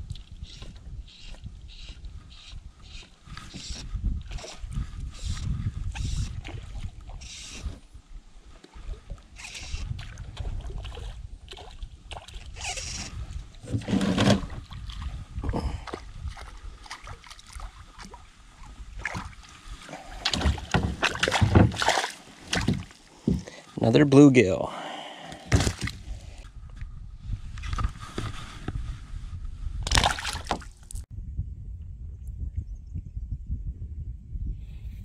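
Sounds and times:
water sloshing: 15.8 - 23.6, 29.9 - 31.0
knocks against kayak hull: 22.5 - 23.5
low rumble: 31.1 - 34.6.

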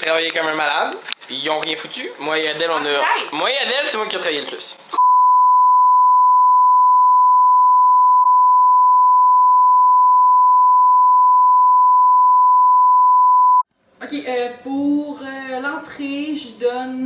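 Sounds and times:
steady sine test tone: 5.0 - 13.6.

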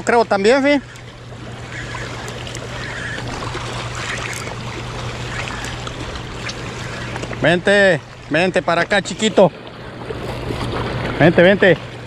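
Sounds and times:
low hum: 0.0 - 11.2
river current rushing over rocks: 1.6 - 9.3.

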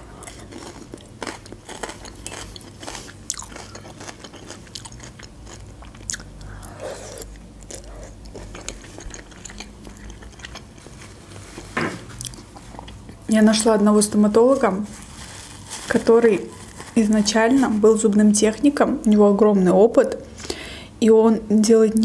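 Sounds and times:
person chewing food: 0.0 - 11.4, 12.0 - 13.2.

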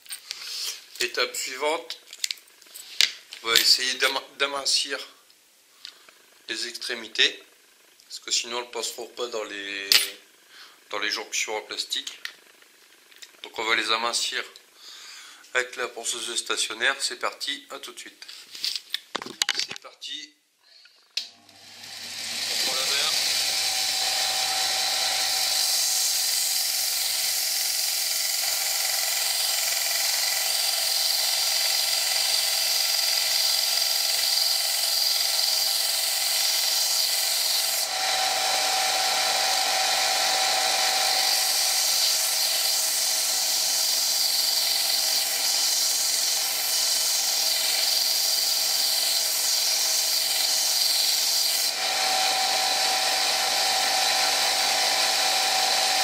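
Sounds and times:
belt sander grinding steel rod: 21.4 - 56.0.

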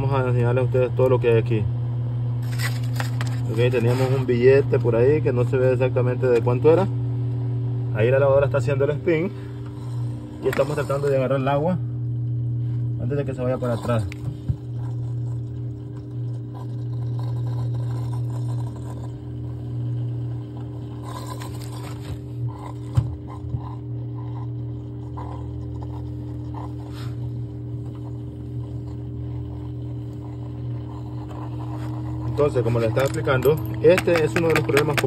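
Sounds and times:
washing machine spinning: 0.0 - 35.0
light scrapes and taps: 31.2 - 35.0.

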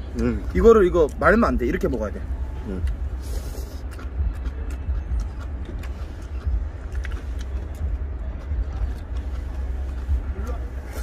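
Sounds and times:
faint eating clicks: 3.7 - 10.2.

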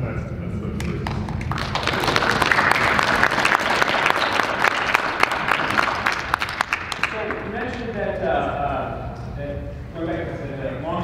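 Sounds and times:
audience applauding: 1.0 - 7.8.

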